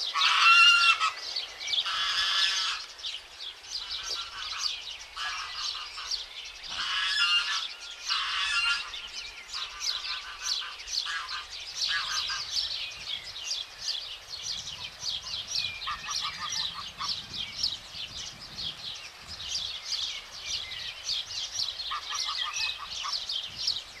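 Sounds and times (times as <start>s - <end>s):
pulsed goose calls: 0.1s - 1.2s, 1.8s - 2.9s, 3.8s - 12.5s, 15.8s - 17.3s, 21.9s - 23.3s
goslings peeping: 0.1s - 3.0s, 3.7s - 12.7s, 14.5s - 17.8s, 21.6s - 23.7s.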